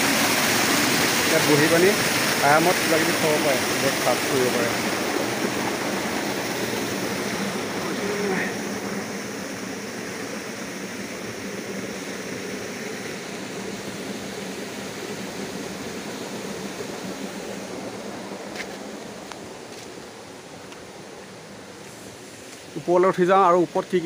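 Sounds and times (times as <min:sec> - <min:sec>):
water rushing and falling: 0:00.0 - 0:24.0.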